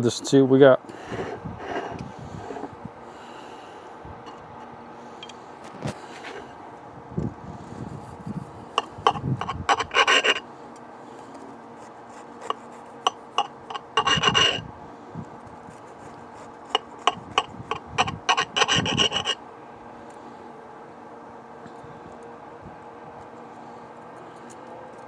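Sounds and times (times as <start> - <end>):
knife sawing through pizza crust: 8.8 - 10.5, 11.8 - 14.7, 15.6 - 19.4.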